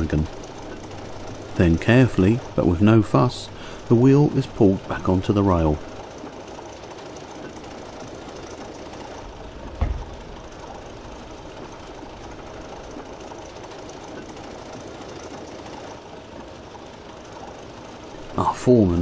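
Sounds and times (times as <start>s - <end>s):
low thump: 9.6s - 10.5s.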